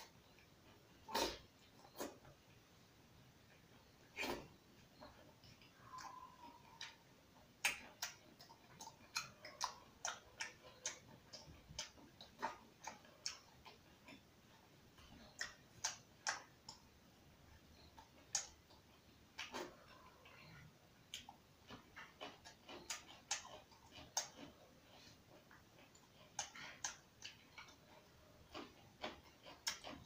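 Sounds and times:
man chewing and lip-smacking: 0.0 - 2.7, 3.4 - 30.0.

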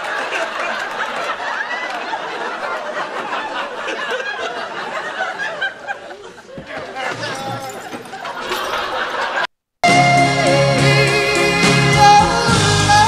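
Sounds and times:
studio audience laughing: 0.0 - 9.5.

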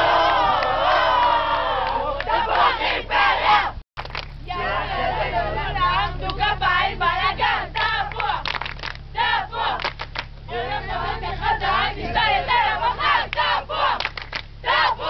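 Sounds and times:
group chanting and shouting: 0.0 - 3.8, 4.4 - 15.0
hand claps: 4.0 - 4.4, 7.8 - 9.0, 9.8 - 10.3, 13.3 - 14.5.

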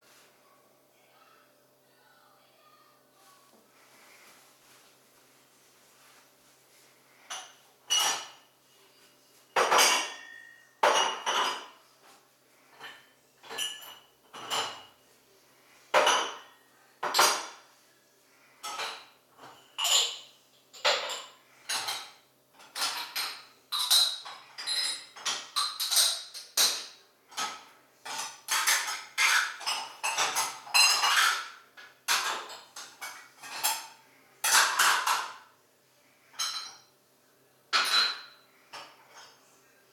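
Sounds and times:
hard objects clinking and clattering: 20.8 - 35.4.

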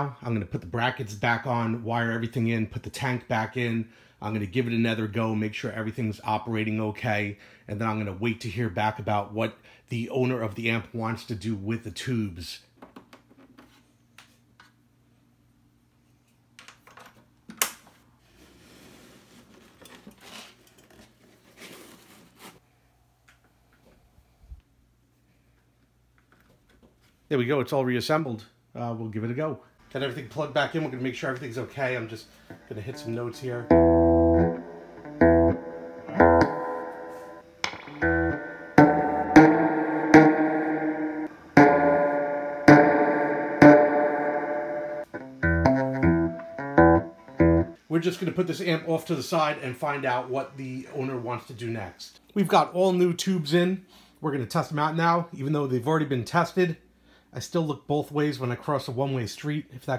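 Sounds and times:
electric guitar chords: 32.3 - 47.8.

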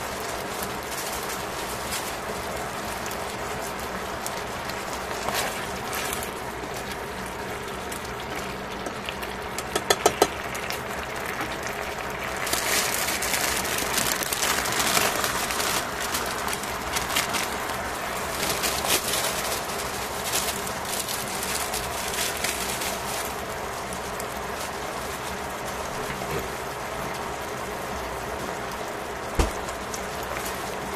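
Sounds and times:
meat sizzling in a pan: 0.0 - 30.9
chopsticks clicking against pan: 9.6 - 10.3.

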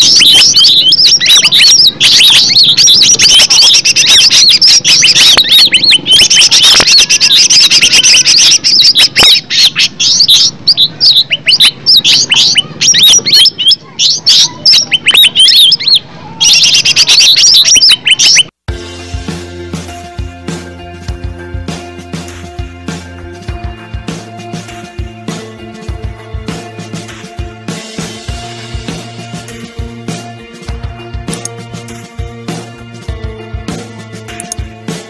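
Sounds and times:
bird singing chirps and whistles: 0.0 - 18.5
music: 0.0 - 35.0.

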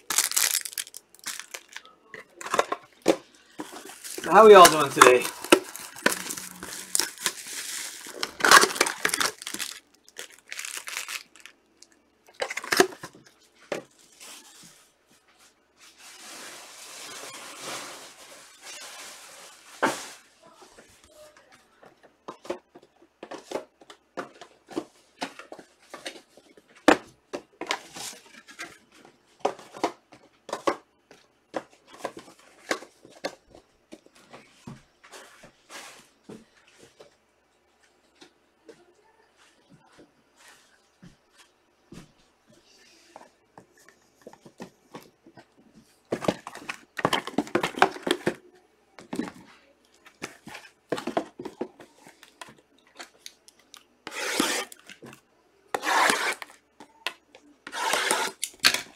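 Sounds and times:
card pack wrappers tearing: 0.0 - 1.8, 3.8 - 11.5.

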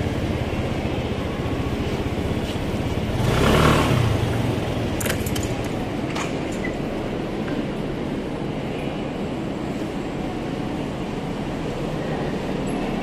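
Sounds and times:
motor scooter engine running: 0.0 - 6.0.

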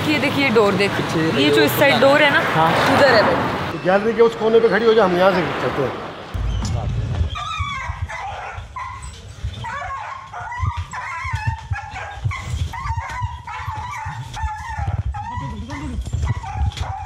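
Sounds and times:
dog yelping and whining: 7.3 - 17.0.

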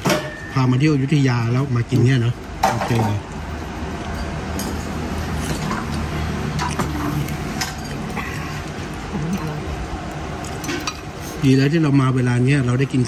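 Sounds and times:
low background hum: 0.0 - 13.0
utensils clinking against ceramic bowls: 6.6 - 9.5, 10.4 - 11.6.

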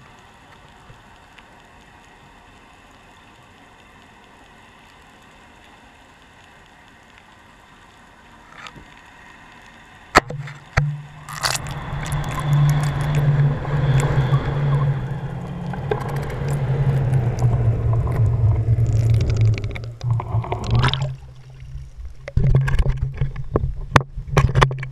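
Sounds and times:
water rushing underwater: 8.3 - 24.9
knocks and splashes: 10.2 - 13.2, 17.4 - 24.9.

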